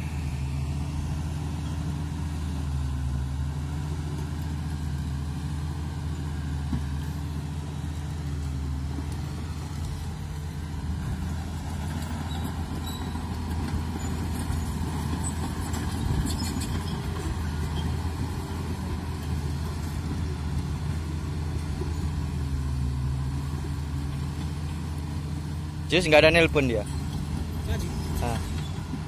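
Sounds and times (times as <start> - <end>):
bulldozer diesel engine running: 0.0 - 29.0
light clatter: 11.3 - 22.2.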